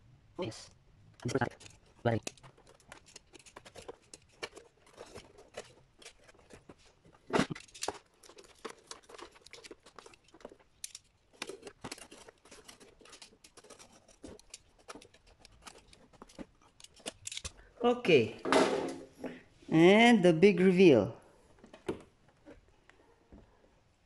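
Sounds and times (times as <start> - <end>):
small metal clicks and scrapes: 1.1 - 17.8.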